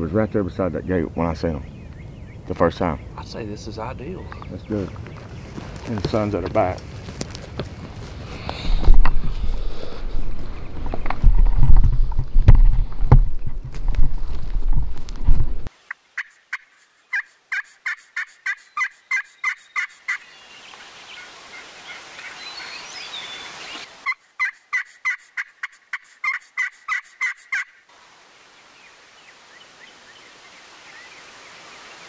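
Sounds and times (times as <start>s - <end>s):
faint songbird chirps: 0.0s - 5.6s, 15.9s - 24.8s, 28.5s - 32.0s
turkey hen yelps: 16.2s - 20.2s, 24.0s - 27.8s.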